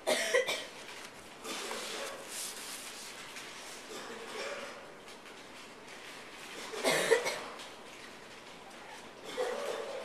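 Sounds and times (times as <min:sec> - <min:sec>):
person coughing: 0:00.0 - 0:00.8, 0:06.7 - 0:07.6.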